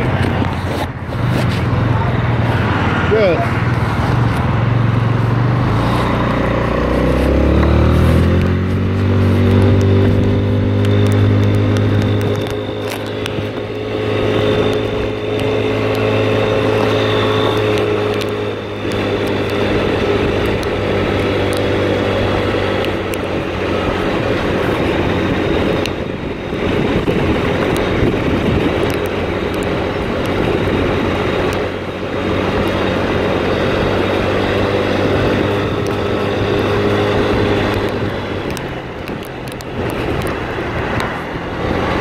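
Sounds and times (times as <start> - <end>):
motor scooter engine: 0.0 - 42.0
road and wind noise: 0.0 - 42.0.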